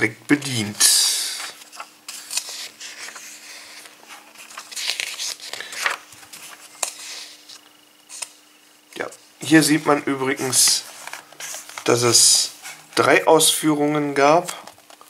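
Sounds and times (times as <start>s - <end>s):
faint steady hum: 0.0s - 15.0s
pages turning: 0.5s - 8.4s, 9.9s - 13.2s.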